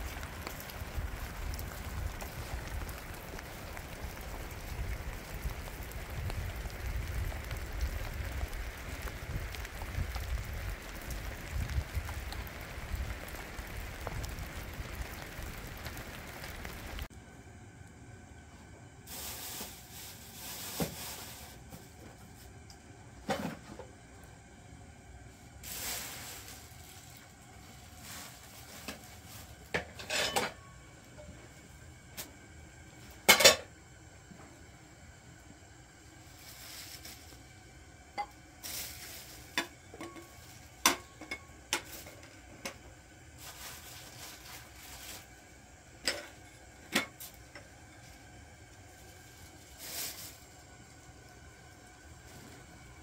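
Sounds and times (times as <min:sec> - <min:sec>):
steady rain: 0:00.0 - 0:17.1, 0:24.2 - 0:29.8, 0:30.6 - 0:53.0
pots and utensils clinking: 0:29.7 - 0:31.4, 0:33.2 - 0:33.7, 0:38.2 - 0:42.8, 0:46.0 - 0:48.1.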